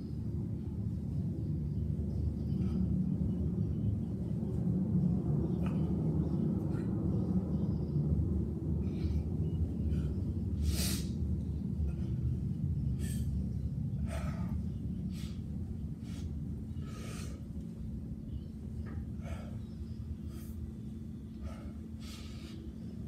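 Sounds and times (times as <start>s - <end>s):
steady low rumble: 0.0s - 23.0s
man breathing hard: 8.6s - 18.1s, 18.9s - 23.0s.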